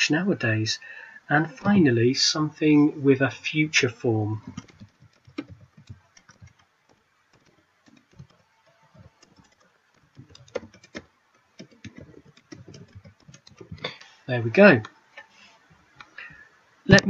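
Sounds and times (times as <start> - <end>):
computer keyboard typing: 4.4 - 14.0.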